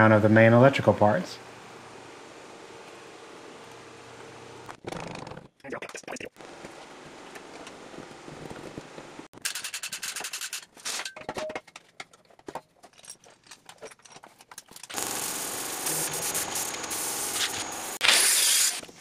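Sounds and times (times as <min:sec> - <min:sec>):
machine noise with high whine: 0:14.9 - 0:18.0.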